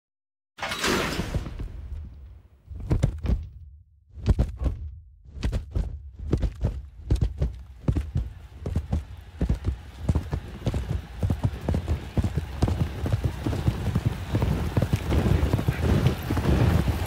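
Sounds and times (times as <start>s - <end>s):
hooves galloping on turf: 4.2s - 17.0s.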